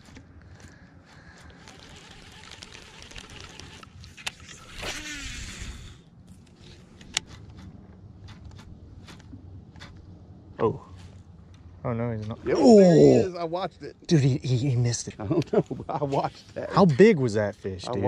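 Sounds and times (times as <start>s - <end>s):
reel spool whirring: 1.3s - 6.0s.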